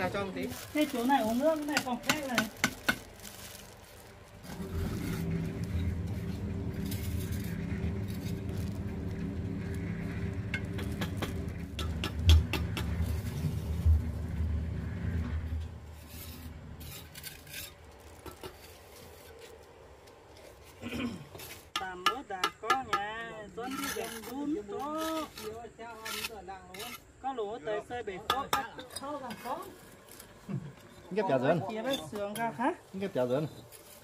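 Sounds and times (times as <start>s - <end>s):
engine running: 3.4s - 16.8s.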